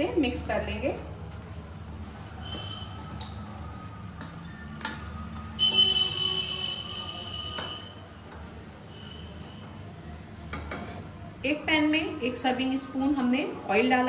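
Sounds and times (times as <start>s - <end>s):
wet squishing of hand mixing: 0.0s - 10.0s.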